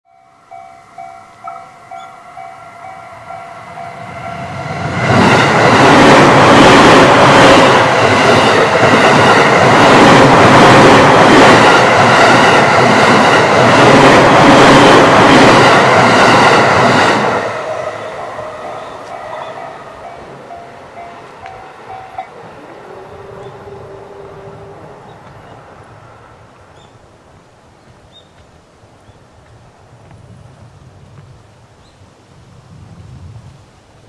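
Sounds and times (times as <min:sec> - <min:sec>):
railroad crossing bell ringing: 0:00.0 - 0:05.6, 0:17.5 - 0:25.6
electric train passing: 0:00.1 - 0:30.8.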